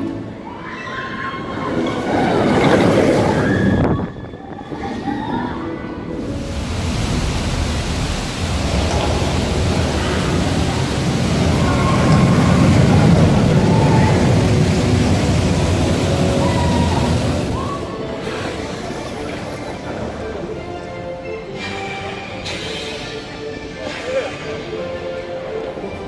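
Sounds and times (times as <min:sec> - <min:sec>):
roller coaster train rumbling: 0:00.0 - 0:20.6.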